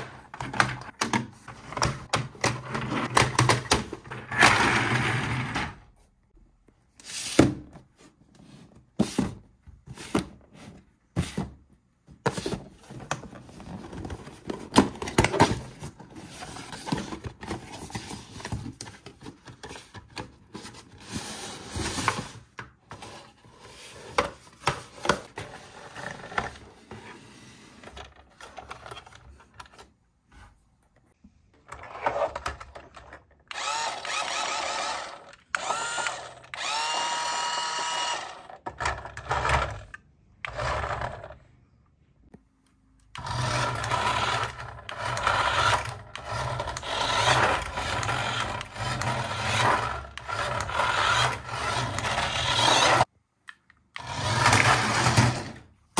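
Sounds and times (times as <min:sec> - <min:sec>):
toy car electric motor whirring: 0:33.5 - 0:39.9, 0:40.5 - 0:41.4, 0:43.2 - 0:53.1, 0:54.0 - 0:55.4.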